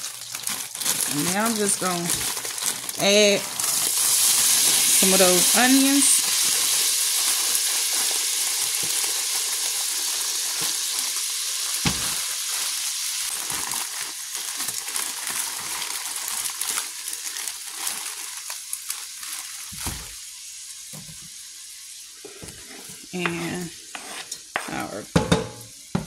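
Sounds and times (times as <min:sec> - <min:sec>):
onions sizzling in butter: 0:00.0 - 0:26.0
dull knock on pot: 0:25.2 - 0:26.0.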